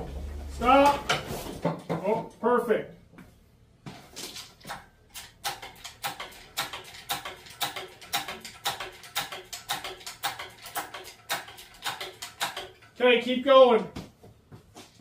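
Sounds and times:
hydraulic hoist pumping clicks: 4.6 - 13.0.

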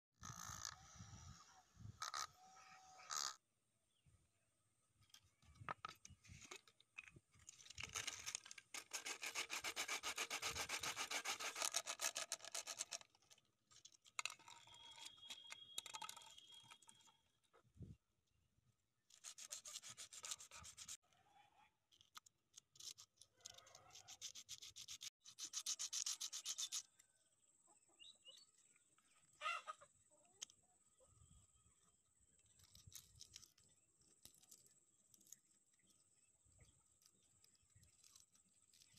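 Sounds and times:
blade sawing through plastic: 7.6 - 13.4, 19.1 - 21.0.

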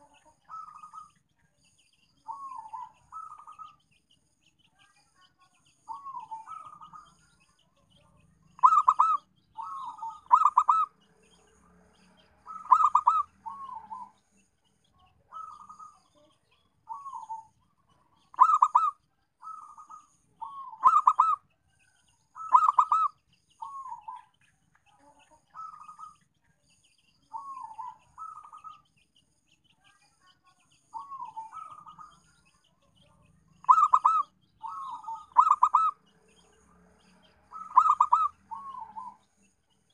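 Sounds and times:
dove cooing: 0.0 - 1.1, 2.3 - 3.8, 5.9 - 7.1, 8.6 - 10.9, 12.5 - 14.2, 15.3 - 16.1, 16.9 - 17.5, 18.3 - 21.4, 22.4 - 24.3, 27.3 - 28.8, 30.9 - 32.2, 33.6 - 36.0, 37.5 - 39.2.

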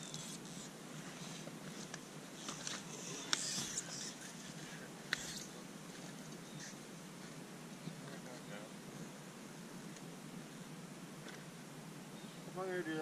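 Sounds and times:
faint rustling and scraping: 0.0 - 9.2.

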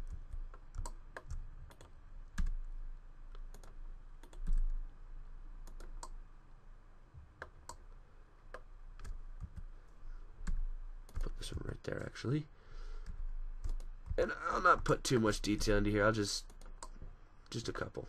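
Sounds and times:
keyboard and mouse clicking: 0.0 - 2.7, 3.3 - 4.8, 5.6 - 6.2, 8.5 - 9.7, 10.4 - 12.1, 13.0 - 14.2, 16.4 - 17.1
steady low hum: 0.0 - 18.0.

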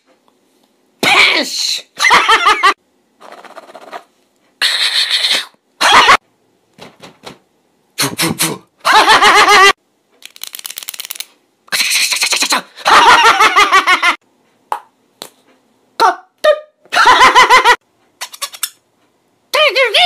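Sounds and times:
man laughing exaggeratedly: 2.0 - 2.8, 5.8 - 6.2, 8.0 - 9.8, 12.1 - 14.2, 16.9 - 17.8.

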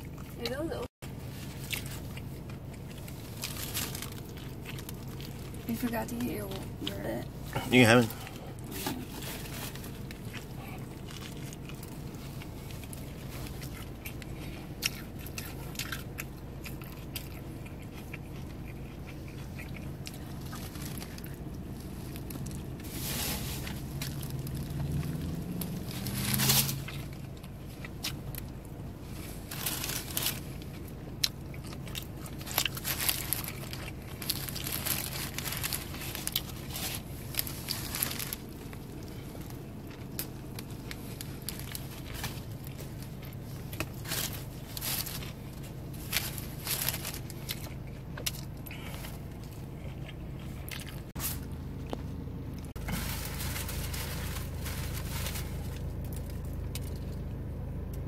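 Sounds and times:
chewing: 0.0 - 0.5, 1.2 - 5.7, 6.6 - 22.9, 23.6 - 52.8
low hum: 0.0 - 58.0
crunching bites of sandwich: 1.3 - 5.7, 9.1 - 22.9, 23.6 - 51.2.

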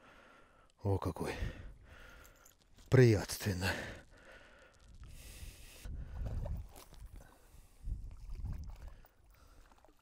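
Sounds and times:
wind buffeting microphone: 4.9 - 9.0.

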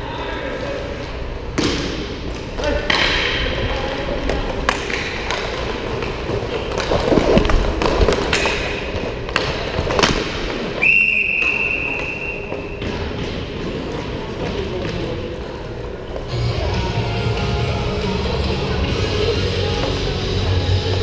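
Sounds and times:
hockey sticks and puck clacking: 1.6 - 16.3.

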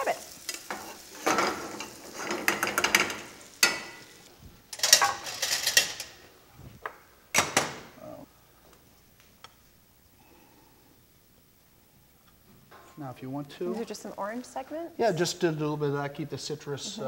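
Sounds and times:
metal utensils clattering: 0.5 - 6.2.

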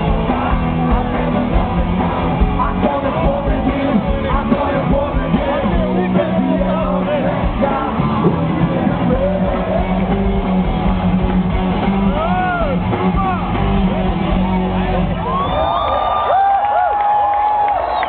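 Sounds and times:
person singing: 0.0 - 10.5
rock band playing loudly: 0.0 - 15.6.

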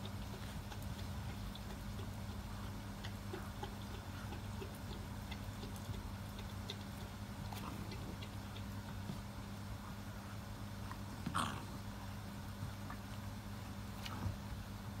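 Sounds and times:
faint clicks and ticks: 0.0 - 9.7
puppies chewing rope toy: 0.0 - 14.6
steady low hum: 0.0 - 15.0.

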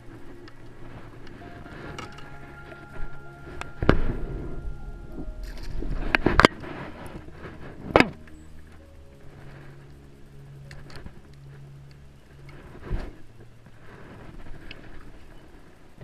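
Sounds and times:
microphone handling rumble: 0.0 - 10.2.

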